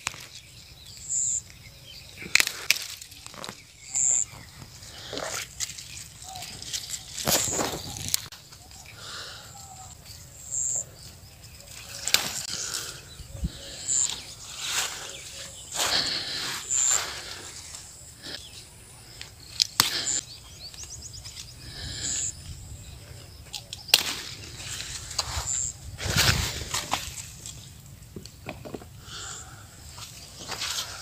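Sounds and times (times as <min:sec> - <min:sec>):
plants rustling and snapping: 0:00.0 - 0:08.9, 0:11.6 - 0:13.0, 0:19.2 - 0:21.5, 0:23.4 - 0:28.8.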